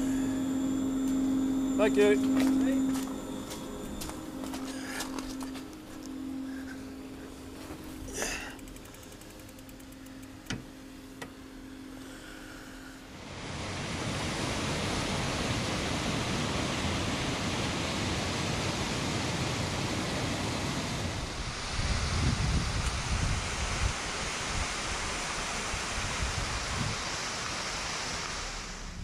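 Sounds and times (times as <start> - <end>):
low steady hum: 0.0 - 29.0
stream and waterfall rushing: 13.1 - 29.0.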